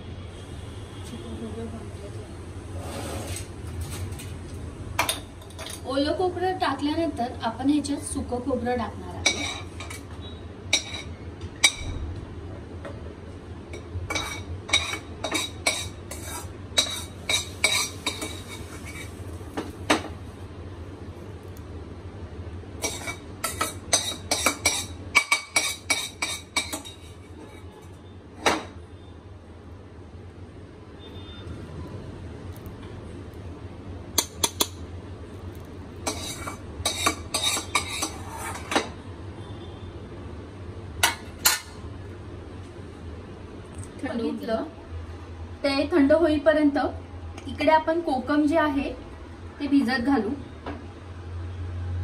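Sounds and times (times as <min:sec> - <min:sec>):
spoon scraping and clattering on steel: 0:14.1 - 0:19.1, 0:22.8 - 0:27.8, 0:36.0 - 0:38.9.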